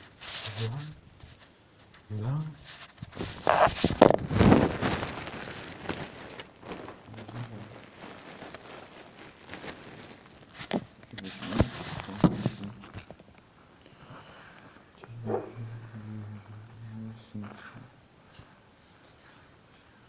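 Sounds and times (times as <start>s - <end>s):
phone rustling against clothing: 0.0s - 13.4s.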